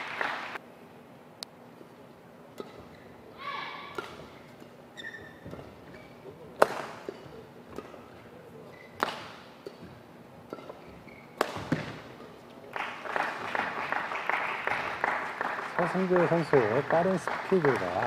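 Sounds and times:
people clapping: 0:00.0 - 0:00.6, 0:12.7 - 0:18.0
racket hitting shuttlecock: 0:02.5 - 0:12.4.

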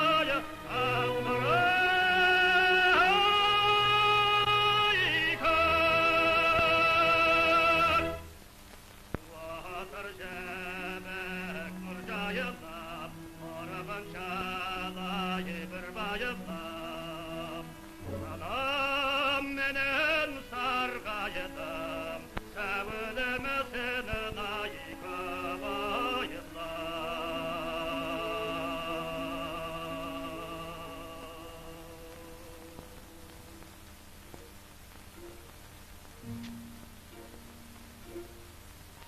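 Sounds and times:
orchestral accompaniment: 0:00.0 - 0:08.3, 0:11.3 - 0:23.0, 0:36.2 - 0:39.0
operatic singing with vibrato: 0:00.0 - 0:08.4, 0:09.2 - 0:33.6.

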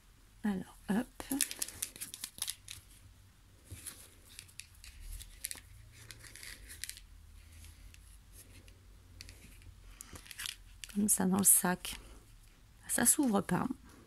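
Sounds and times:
paper rustling and scraping: 0:03.6 - 0:11.1.

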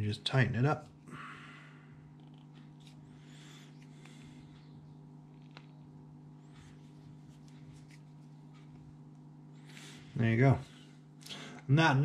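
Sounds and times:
steady low hum: 0:00.0 - 0:12.0
fishing line rustling: 0:06.6 - 0:08.8.

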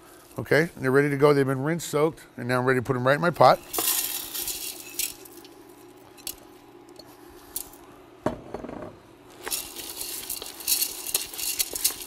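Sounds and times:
kitchenware clinking: 0:09.4 - 0:12.0
wooden spoon stirring beans: 0:09.4 - 0:12.0.

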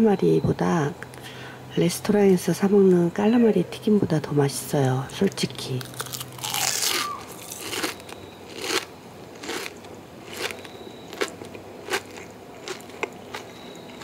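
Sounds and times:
crunchy fried food chewed: 0:05.7 - 0:14.0.

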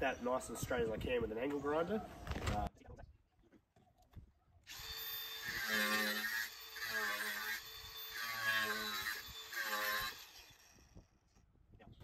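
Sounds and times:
angle grinder cutting: 0:04.7 - 0:10.8.

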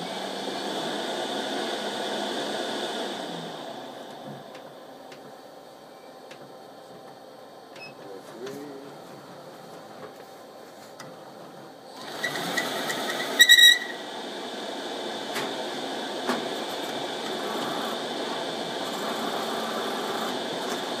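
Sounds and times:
printer motor running with whine: 0:11.1 - 0:21.0
loud short squeal: 0:12.1 - 0:14.0.

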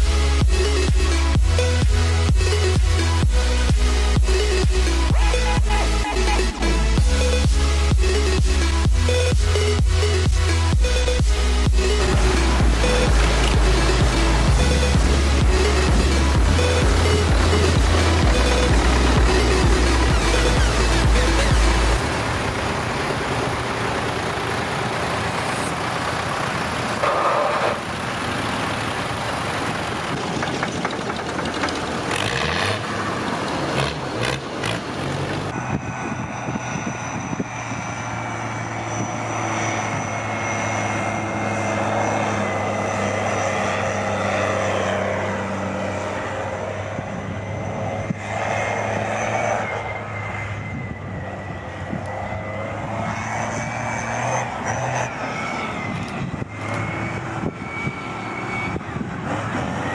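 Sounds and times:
tractor diesel engines driving past: 0:00.0 - 0:59.9
tractor engine running steadily: 0:00.0 - 0:59.9.

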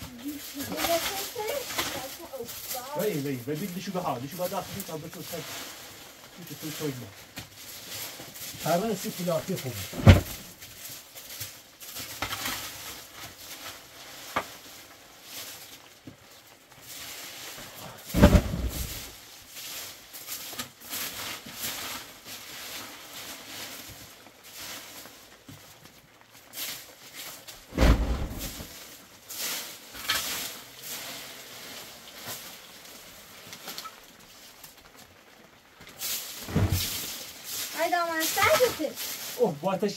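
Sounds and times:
broom sweeping dry leaves: 0:00.0 - 0:39.9
heavy thump: 0:09.9 - 0:10.4, 0:18.1 - 0:19.1, 0:27.7 - 0:28.6
shovel scraping dirt: 0:36.1 - 0:39.2.

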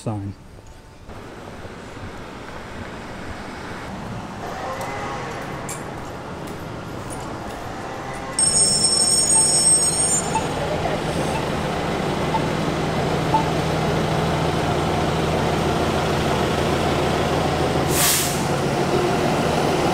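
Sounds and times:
bus engine idling: 0:01.0 - 0:04.4, 0:05.2 - 0:19.9
high squeal: 0:08.3 - 0:11.7
faint beeps: 0:13.3 - 0:13.6
hiss of air: 0:17.9 - 0:18.5.

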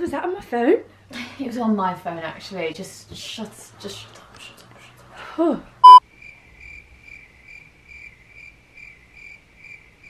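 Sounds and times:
crickets chirping: 0:06.2 - 0:10.0.

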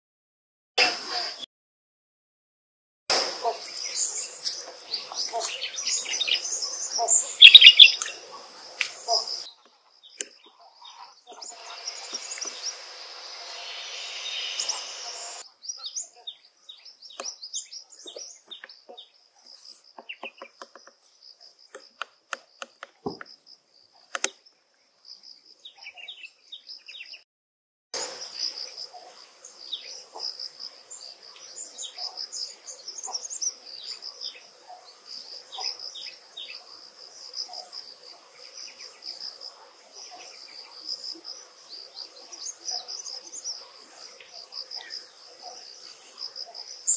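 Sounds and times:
small birds chirping: 0:03.5 - 0:27.2, 0:30.9 - 0:36.7
high-pitched insect drone: 0:11.4 - 0:15.4.

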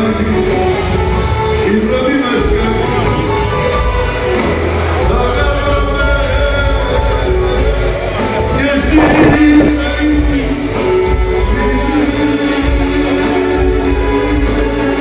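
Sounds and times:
live band music: 0:00.0 - 0:15.0
person singing: 0:08.6 - 0:15.0.

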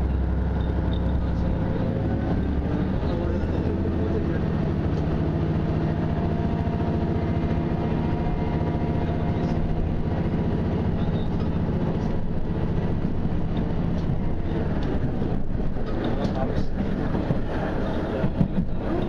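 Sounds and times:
low engine drone: 0:00.0 - 0:19.0
train track noise: 0:00.0 - 0:19.0
faint rail clicks: 0:12.9 - 0:19.0.

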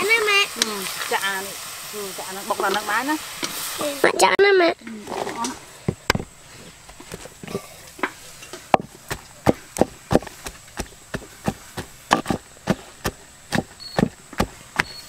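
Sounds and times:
blade chopping wood: 0:08.7 - 0:15.0.

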